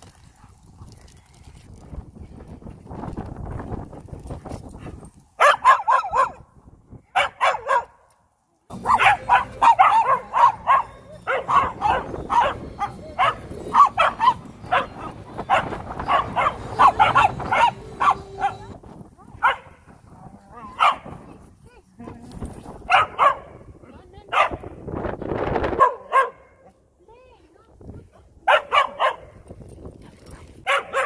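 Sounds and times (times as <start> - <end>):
small dog yapping: 8.8 - 18.7.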